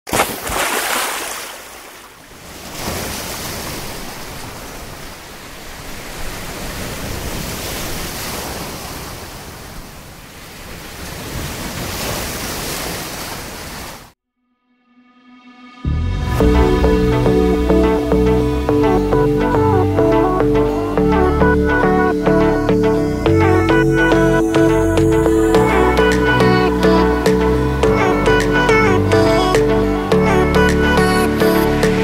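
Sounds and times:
waves breaking: 0.1 - 14.2.

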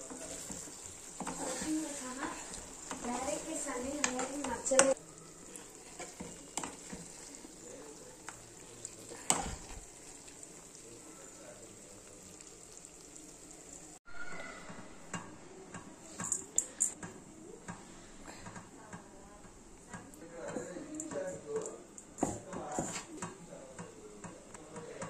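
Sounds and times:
spatula scraping a pan: 0.0 - 7.6, 22.7 - 23.1
curry sizzling in a pan: 0.0 - 14.3.

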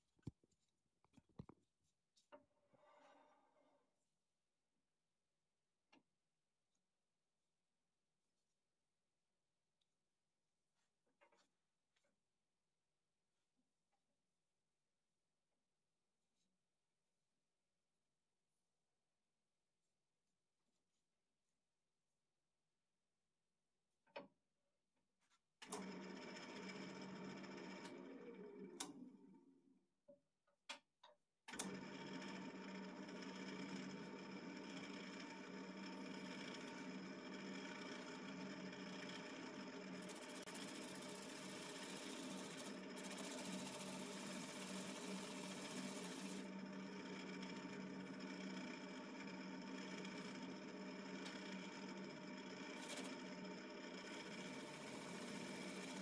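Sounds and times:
wood lathe motor hum: 25.6 - 29.1, 31.5 - 56.0
turning tool cutting wood: 31.5 - 56.0.

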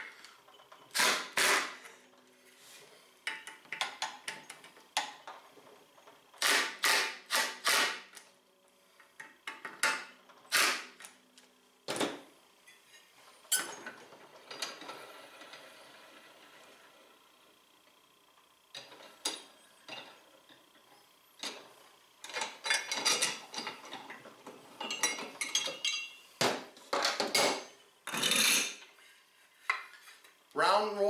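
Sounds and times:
metal parts clinking and clanking: 22.2 - 26.2.

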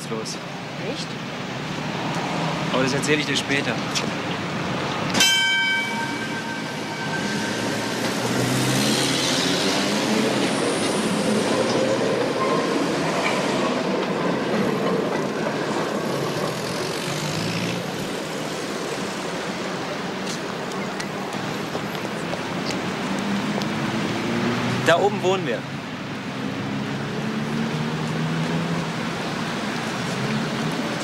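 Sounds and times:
street traffic passing: 0.0 - 31.0
tram bell ringing: 5.1 - 16.4.

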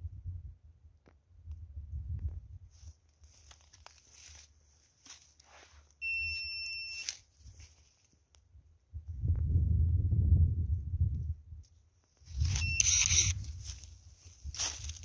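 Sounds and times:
footsteps crunching in dry grass: 2.7 - 6.0, 7.0 - 8.2, 12.1 - 15.0
high electronic beep: 6.0 - 7.1, 12.5 - 13.3.

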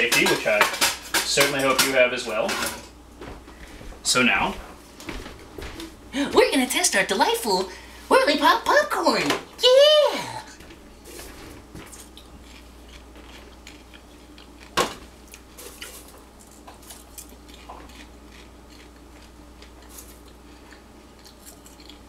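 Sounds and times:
faint crunching of popcorn: 10.5 - 22.0.

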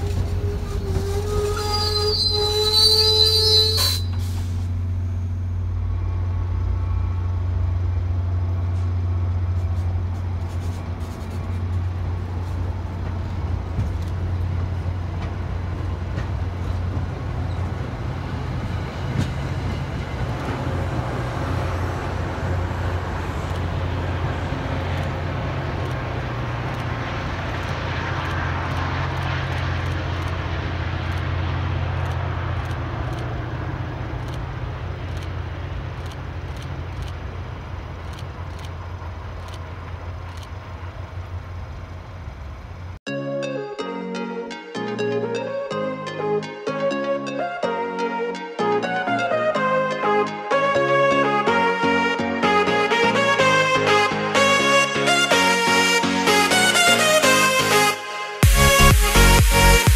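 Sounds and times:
train coaches rumbling on rails: 0.0 - 43.0
diesel locomotive drone: 0.0 - 59.9.

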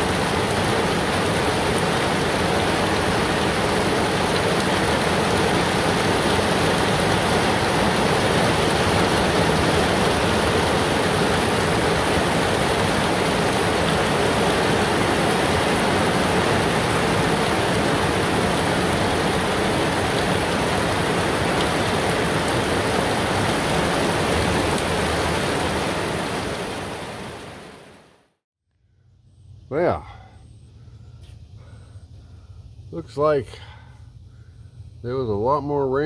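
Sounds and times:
heavy rain pouring: 0.0 - 28.3.

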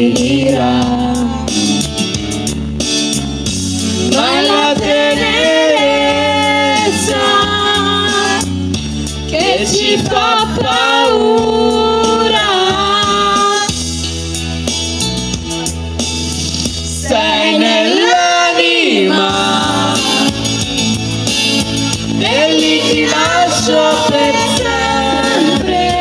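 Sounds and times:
women singing karaoke: 0.0 - 1.8, 4.0 - 8.6, 9.3 - 13.8, 16.9 - 20.8, 22.1 - 26.0
pop backing track: 0.0 - 26.0.

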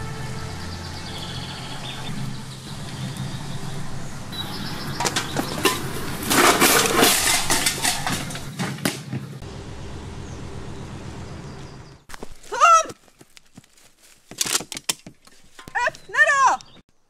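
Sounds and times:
birds chirping: 0.0 - 8.5, 9.1 - 14.2, 15.2 - 17.0
cans and litter being stepped through: 4.4 - 8.8.

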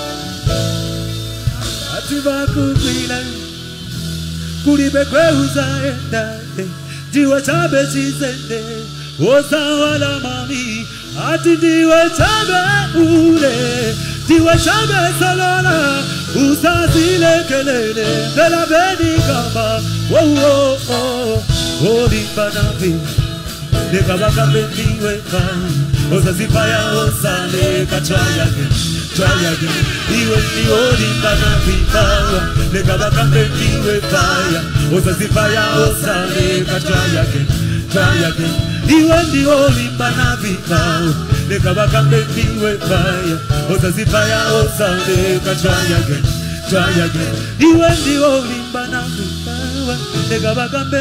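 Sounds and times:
live band playing: 0.0 - 51.0
man singing into a microphone: 1.6 - 51.0
quick steady beat: 16.7 - 48.2.

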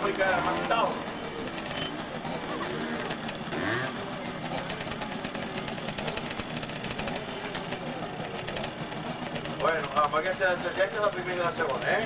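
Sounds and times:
faint voices: 0.0 - 12.0
small two-stroke motorcycle engine: 0.0 - 12.0.

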